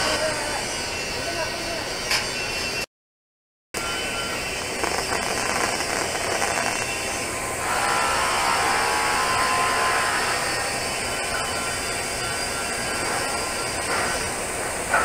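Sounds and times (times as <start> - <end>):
welding arc hissing: 0.0 - 2.5, 3.9 - 15.0.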